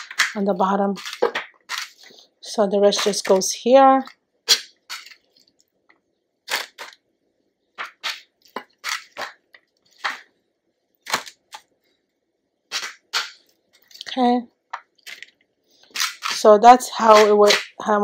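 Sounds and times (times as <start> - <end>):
spoon scraping food mixture: 0.0 - 3.6, 4.5 - 5.7, 14.8 - 17.8.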